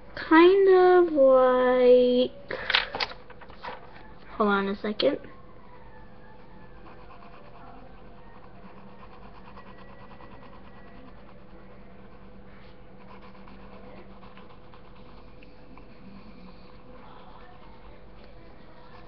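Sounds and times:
faint low hum: 0.0 - 19.0
pencil scratching on paper: 6.3 - 19.0.

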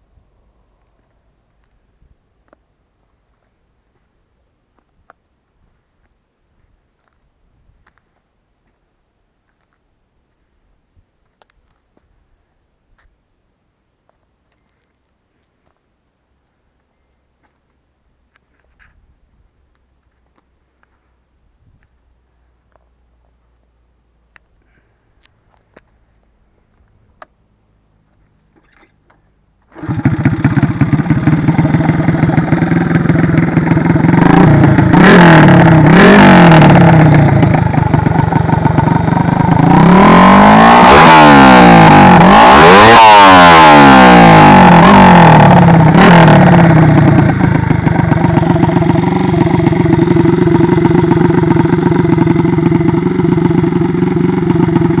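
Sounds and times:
motorcycle engine idling and revving: 24.6 - 55.0.

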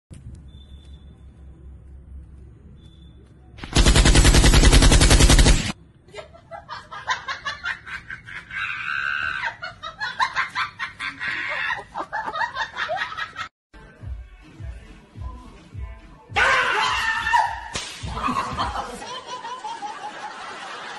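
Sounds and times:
rapid-fire clatter: 3.6 - 5.8.

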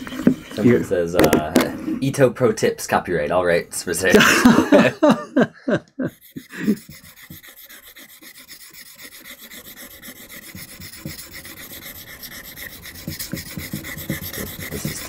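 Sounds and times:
chisel scraping on whetstone: 6.1 - 15.0.

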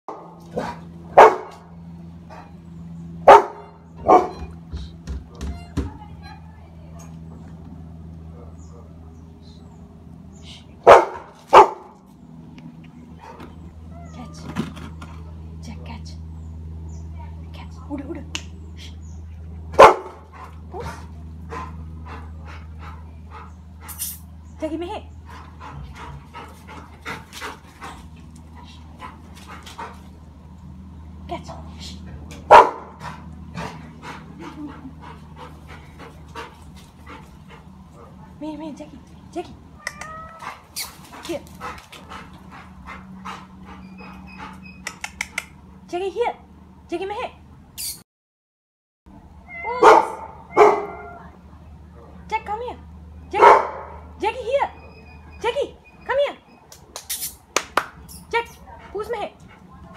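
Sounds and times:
young dog barking: 0.1 - 1.6, 3.2 - 4.4, 10.8 - 11.9, 19.8 - 20.2, 32.5 - 33.0, 49.8 - 51.2, 53.4 - 54.1
steady low hum: 0.1 - 47.8
puppy panting: 20.2 - 24.3, 25.0 - 30.3, 31.6 - 38.4, 39.9 - 45.9, 57.8 - 59.9.

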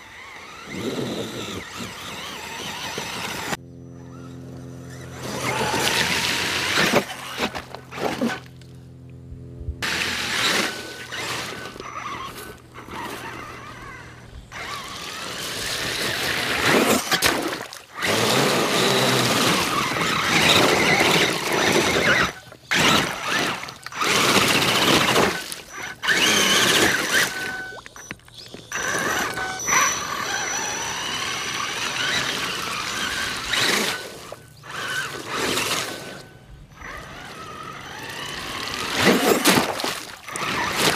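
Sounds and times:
tyres crunching through ice: 9.8 - 40.9.

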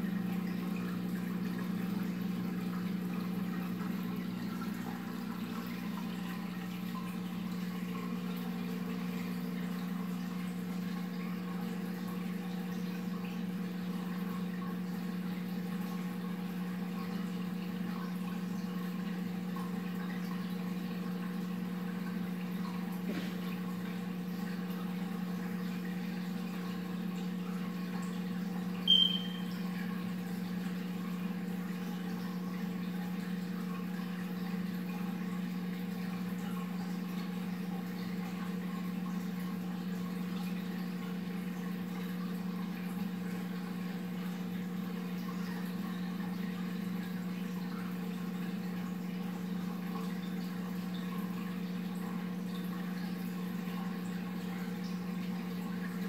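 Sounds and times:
filter low hum: 0.0 - 56.0
running water: 0.0 - 56.0
high-pitched chirp: 28.9 - 29.5.

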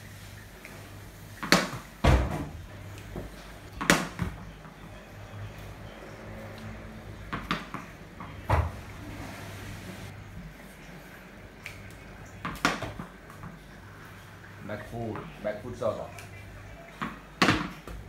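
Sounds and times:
ball bouncing on tiled floor: 1.4 - 4.8, 7.2 - 8.8, 11.6 - 13.6, 16.9 - 18.0
bat striking tennis ball: 3.8 - 4.3.

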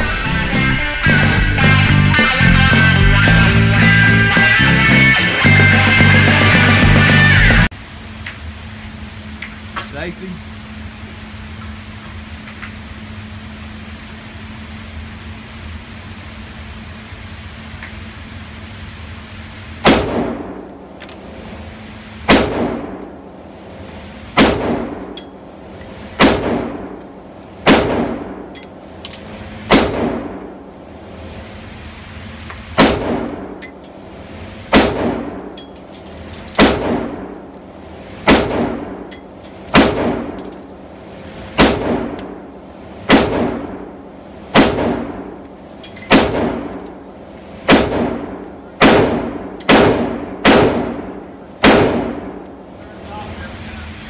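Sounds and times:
rifle shots echoing indoors: 19.8 - 20.6, 22.2 - 23.1, 24.3 - 25.2, 26.2 - 28.5, 29.7 - 30.5, 32.8 - 33.6, 34.7 - 35.5, 36.5 - 37.4, 38.2 - 39.0, 39.6 - 40.4, 41.5 - 42.4, 43.0 - 43.9, 44.5 - 45.4, 46.1 - 46.8, 47.6 - 52.4.

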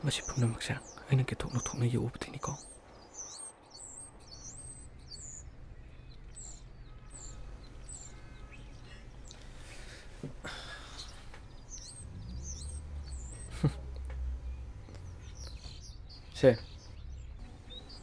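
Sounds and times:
small birds chirping: 0.0 - 18.0
low steady hum: 4.5 - 18.0.

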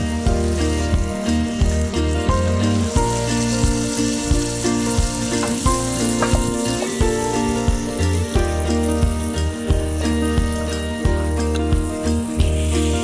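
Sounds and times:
background music with beat: 0.0 - 13.0
paste sizzling in hot oil: 0.0 - 13.0.

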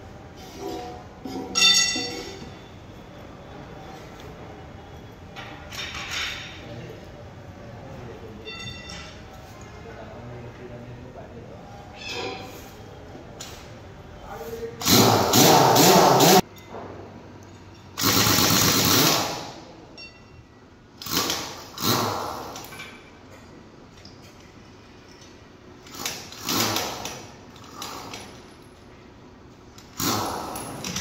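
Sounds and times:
pneumatic impact wrench hammering: 14.8 - 16.4, 18.0 - 19.6, 21.0 - 23.0, 25.8 - 28.4, 29.8 - 31.0.

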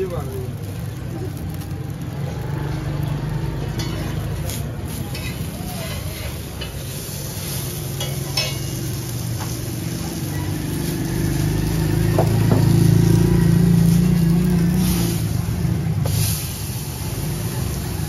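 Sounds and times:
buns sizzling on griddle: 0.0 - 18.0
vehicle engine hum: 0.0 - 18.0
metal spatula clinks: 8.0 - 8.7.

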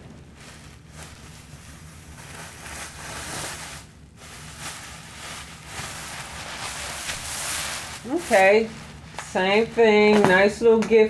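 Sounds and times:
plastic bag rustling and crinkling: 0.0 - 10.6.

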